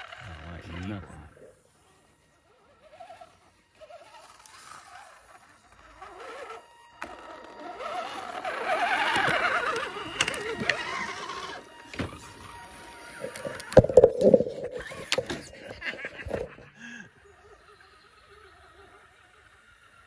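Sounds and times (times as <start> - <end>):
rc truck motor whine: 0.0 - 20.0.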